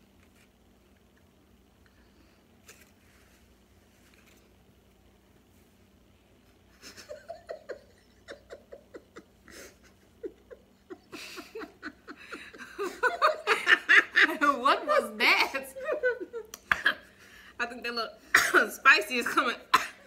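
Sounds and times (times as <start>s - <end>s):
woman laughing: 6.7s - 17.1s, 18.4s - 20.0s.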